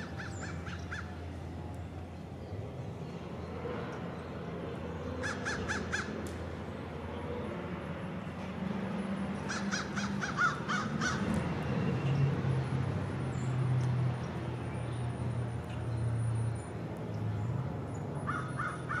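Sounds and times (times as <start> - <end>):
bird harsh calls: 5.2 - 6.2, 9.4 - 11.2, 18.2 - 19.0.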